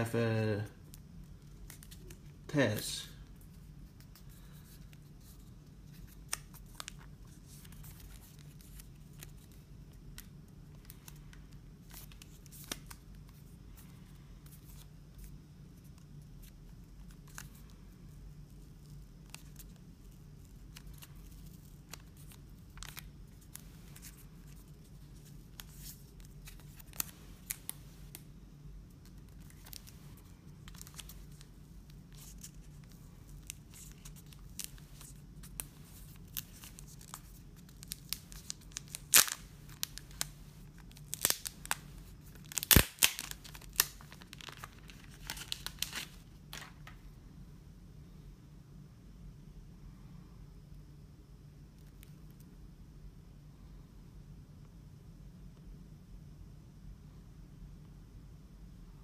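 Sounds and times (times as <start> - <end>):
steady low hum: 0.0 - 59.0
plastic film crackling: 20.6 - 28.2, 29.1 - 47.0.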